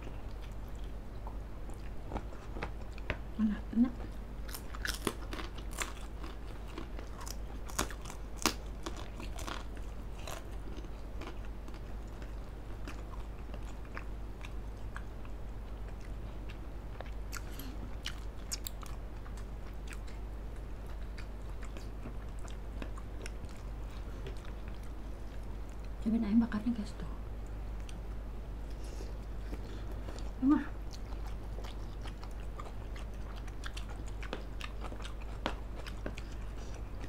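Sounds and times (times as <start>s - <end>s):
steady low hum: 0.0s - 37.0s
chewing and biting food: 0.1s - 3.2s, 4.1s - 26.0s, 28.6s - 37.0s
crisp crackers crunching: 4.5s - 14.0s.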